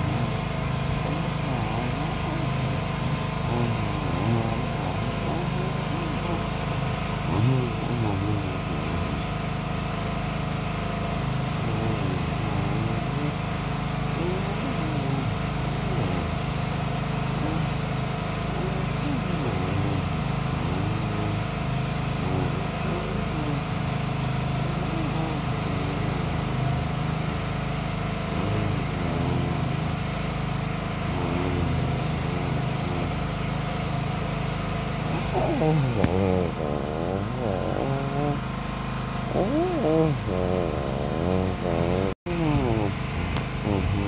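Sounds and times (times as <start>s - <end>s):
engine droning: 0.0s - 44.0s.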